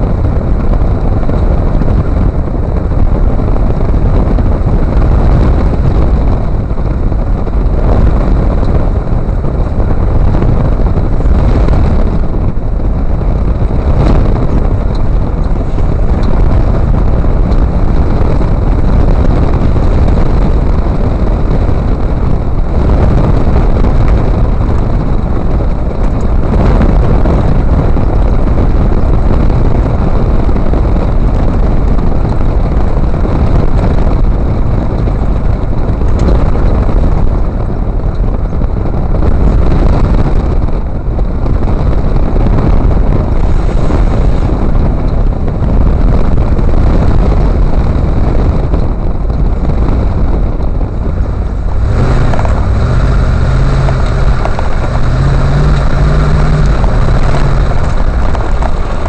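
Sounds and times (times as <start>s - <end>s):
tyre and road noise: 0.0s - 59.0s
wind buffeting microphone: 0.0s - 59.0s.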